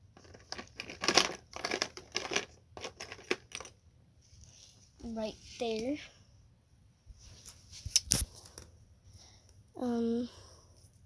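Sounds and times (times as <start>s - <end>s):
plastic crinkling: 0.2s - 3.8s.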